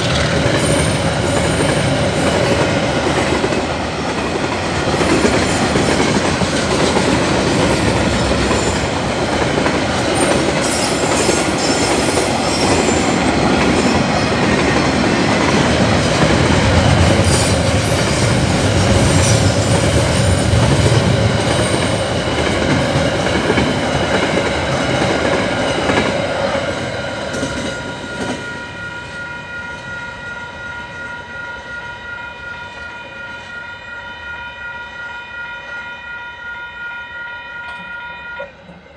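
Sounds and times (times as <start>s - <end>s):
crossing warning bell ringing: 0.0s - 26.3s, 26.9s - 38.9s
freight train wheels clacking: 0.0s - 29.1s.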